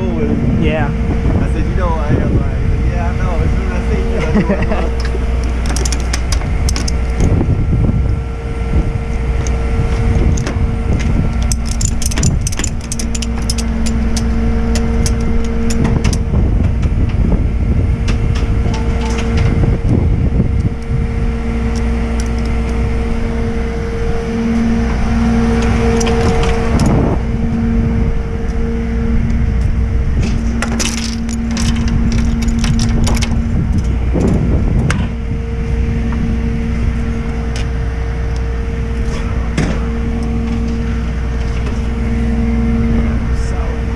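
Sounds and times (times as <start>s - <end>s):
engine hum: 0.0s - 43.9s
chain rattling against metal: 4.5s - 7.4s, 10.2s - 16.3s, 18.4s - 19.6s, 30.3s - 34.5s
ratchet strap clicking: 5.4s - 7.3s, 10.3s - 16.2s.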